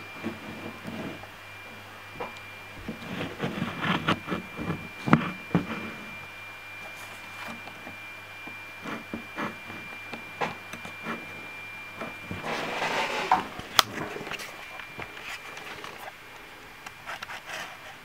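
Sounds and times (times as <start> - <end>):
faint high whine: 0.0 - 18.0
cat rubbing against camera: 2.9 - 6.2.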